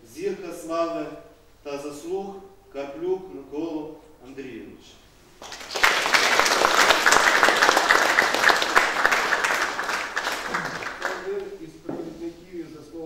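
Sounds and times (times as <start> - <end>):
audience applauding: 5.4 - 11.5.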